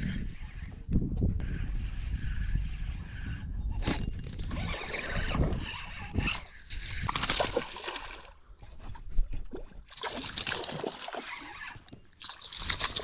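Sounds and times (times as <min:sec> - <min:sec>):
water sloshing and splashing: 0:04.3 - 0:13.0.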